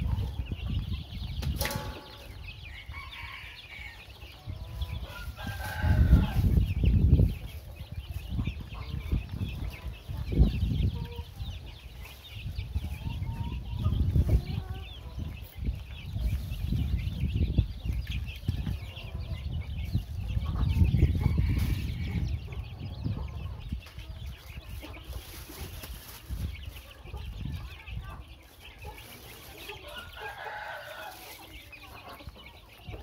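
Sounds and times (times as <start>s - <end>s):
chicks peeping: 0.0s - 33.0s
low chicken calls: 1.6s - 6.9s.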